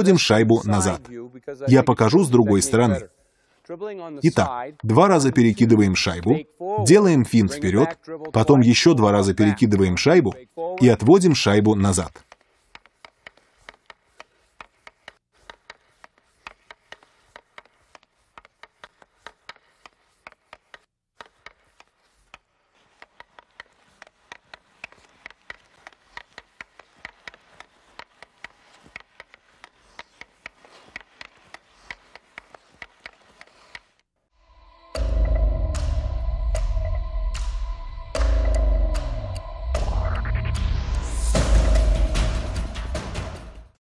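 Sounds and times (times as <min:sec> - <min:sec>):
hockey stick tapping puck on ice: 0:11.5 - 0:34.0.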